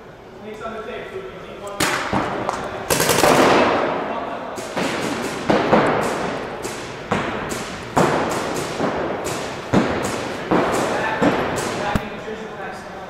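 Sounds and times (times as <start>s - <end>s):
paintball markers popping with echo: 4.6s - 12.2s.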